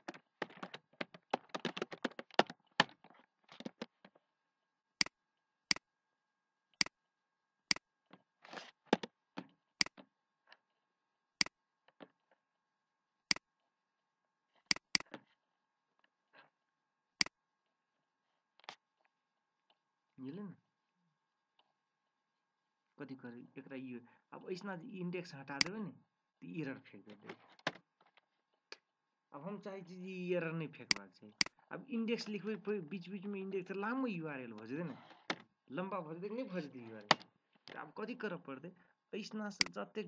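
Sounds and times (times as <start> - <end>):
computer keyboard typing: 0.0 - 3.9
mouse clicks: 14.7 - 15.2.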